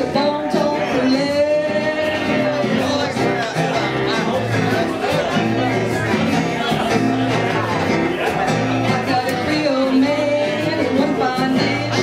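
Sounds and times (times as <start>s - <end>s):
woman singing into a microphone: 0.0s - 3.2s, 8.8s - 12.0s
live band playing: 0.0s - 12.0s.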